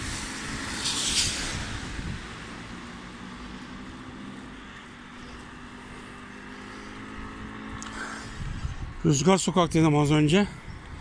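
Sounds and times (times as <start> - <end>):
tyres hissing on wet road: 0.0 - 8.5
street background hum: 0.0 - 11.0.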